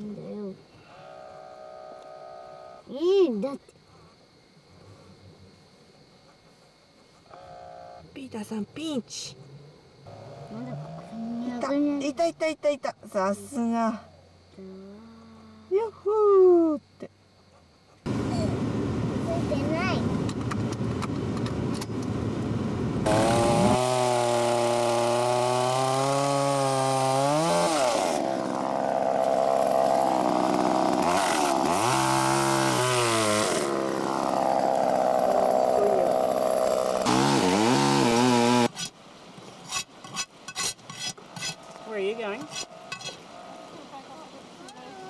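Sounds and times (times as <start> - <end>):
chainsaw revving and cutting log: 23.0 - 38.8.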